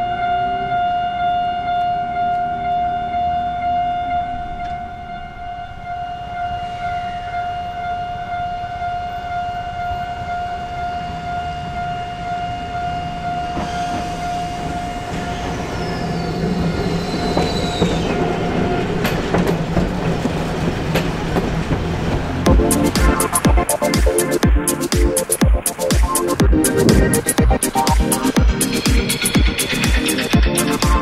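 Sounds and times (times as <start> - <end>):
level-crossing alarm ringing: 0.0 - 18.7
tram motor hum: 12.5 - 31.0
high wheel squeal: 13.1 - 19.2
wheels clacking over rail joints: 13.5 - 31.0.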